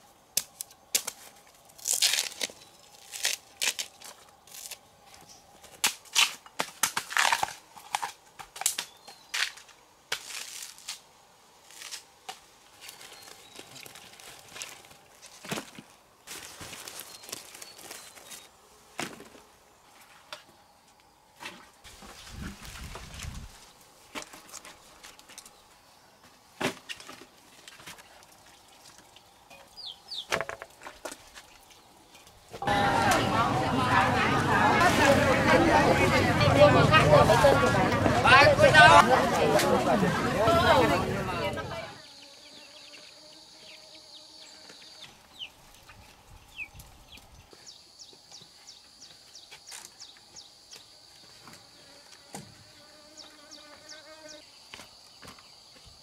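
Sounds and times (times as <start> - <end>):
wooden knocks and cracks: 30.2 - 31.4.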